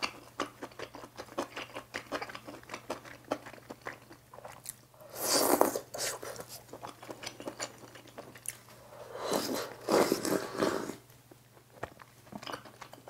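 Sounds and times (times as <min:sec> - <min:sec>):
soft wet chewing: 0:00.0 - 0:13.0
loud slurping: 0:09.1 - 0:11.0.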